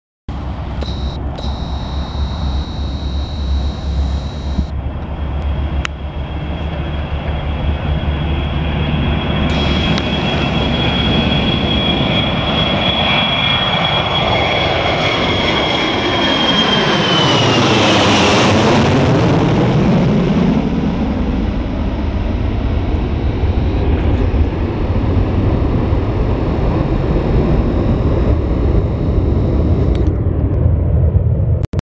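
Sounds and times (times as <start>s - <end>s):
jet aircraft rumble: 0.4s - 14.0s, 19.9s - 31.6s
jet engines turbine whine: 0.7s - 17.6s, 20.8s - 30.4s.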